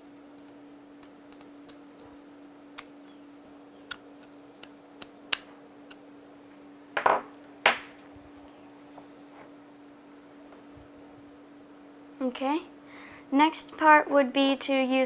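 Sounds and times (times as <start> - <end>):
faint steady hum: 0.0 - 15.0
scissors snipping wires: 3.9 - 6.0.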